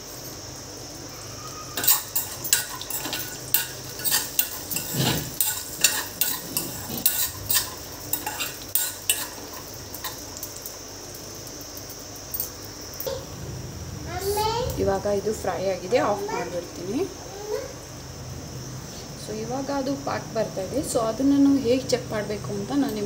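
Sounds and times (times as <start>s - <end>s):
faint sizzle: 0.0s - 23.0s
metal spoon scraping a pan: 1.8s - 10.2s.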